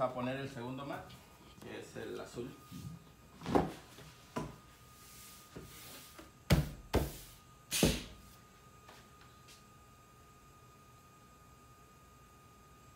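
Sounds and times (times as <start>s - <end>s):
board slapping and thumping: 6.5s - 8.2s.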